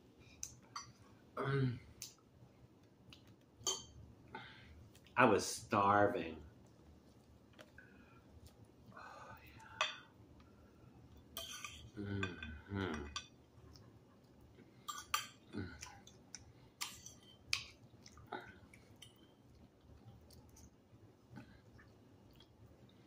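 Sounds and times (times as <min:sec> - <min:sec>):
chewing: 0:10.4 - 0:23.0
person humming: 0:12.0 - 0:13.2.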